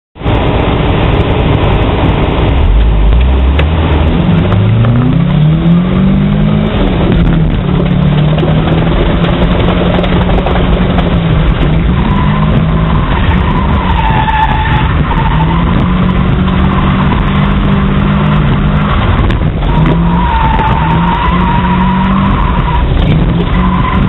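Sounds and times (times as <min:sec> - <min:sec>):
car engine at full throttle: 0:00.2 - 0:24.0
high tire squeal: 0:11.2 - 0:24.0.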